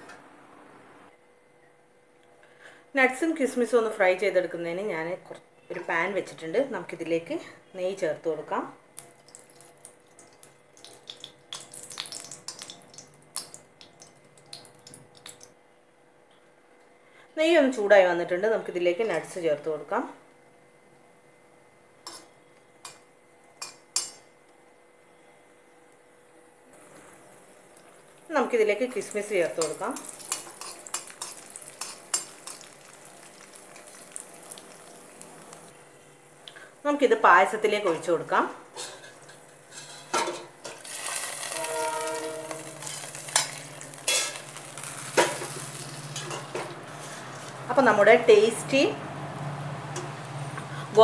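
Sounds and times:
nuts sizzling in hot fat: 8.9 - 15.5, 26.7 - 51.0
spoon scraping a frying pan: 22.0 - 23.0, 29.5 - 32.7, 38.8 - 47.6.

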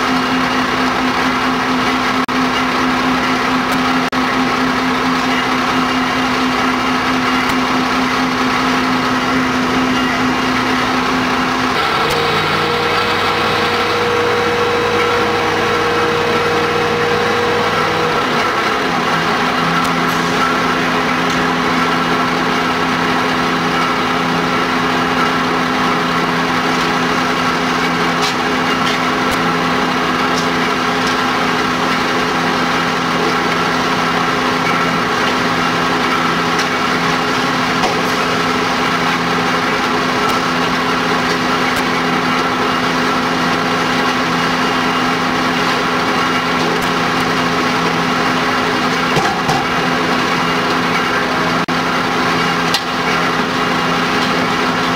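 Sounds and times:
diesel engine running: 0.0 - 54.9.

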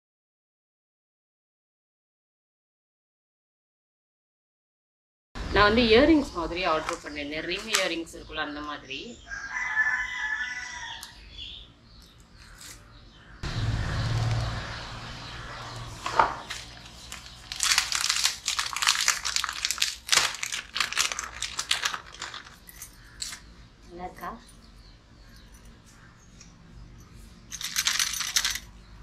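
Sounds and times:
plastic packaging crinkling: 16.5 - 23.4.

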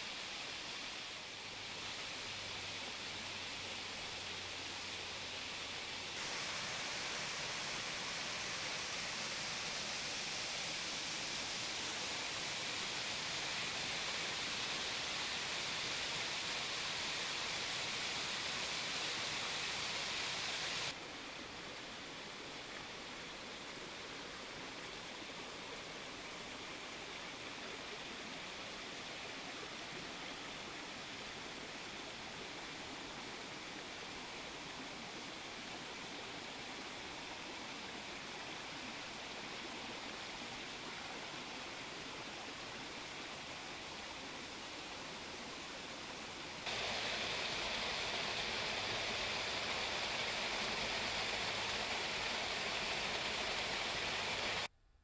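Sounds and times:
rocky stream flowing: 0.2 - 54.7
waterfall rushing: 4.0 - 21.0, 46.6 - 54.7.

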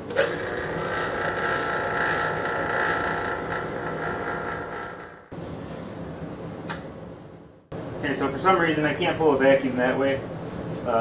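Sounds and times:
vacuum pump whining: 0.0 - 5.7.

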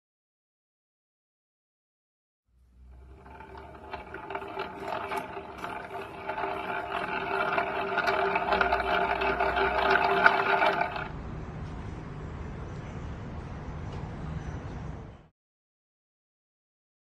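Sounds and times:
paramotor gearbox whine and drone: 2.6 - 11.2.

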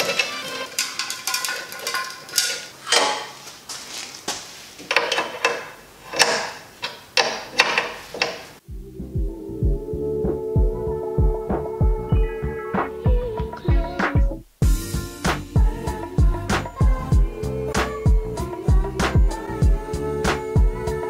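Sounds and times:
metal hose fittings clicking: 0.0 - 3.4, 4.8 - 8.5
music with thumping bass beat: 8.6 - 21.0.

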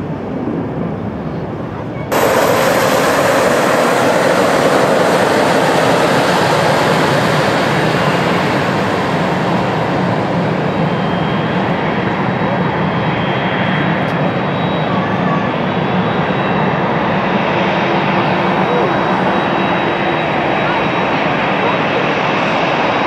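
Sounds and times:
jet engines running: 0.0 - 23.0
faint high whine: 2.1 - 16.4.

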